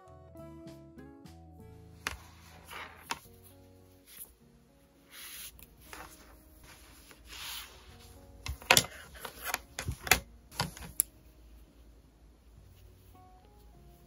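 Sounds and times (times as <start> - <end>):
soft background music: 0.0 - 14.0
knitted fabric rustling: 2.0 - 4.4, 5.0 - 11.8
wooden knitting needles clicking: 8.4 - 11.1.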